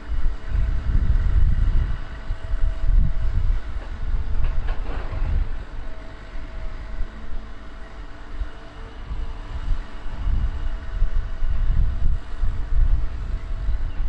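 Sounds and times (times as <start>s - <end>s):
excavator diesel engine rumbling: 0.0s - 14.0s.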